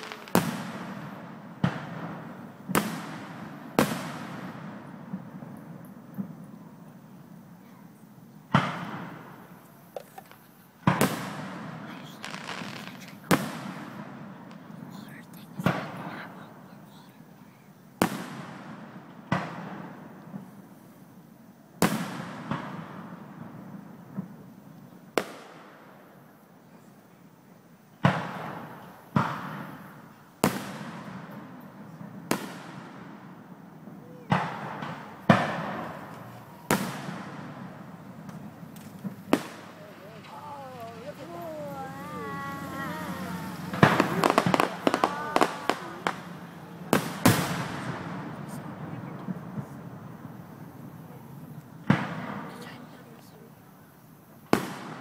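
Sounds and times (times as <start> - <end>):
rolling echo: 0.0 - 7.4, 28.0 - 53.0
firework shells booming: 0.0 - 7.6, 8.5 - 14.9, 15.5 - 16.6, 18.0 - 20.8, 21.8 - 26.3, 28.0 - 53.0, 54.5 - 55.0.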